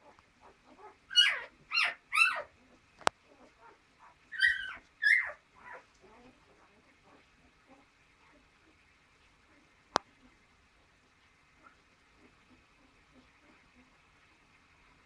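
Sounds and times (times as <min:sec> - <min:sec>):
puppies whimpering: 0:00.0 - 0:08.4
puppies squealing: 0:00.4 - 0:07.8.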